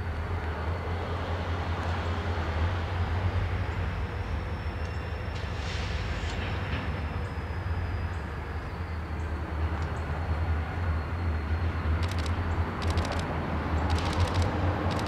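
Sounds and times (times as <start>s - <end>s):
short clicks: 12.0s - 15.0s.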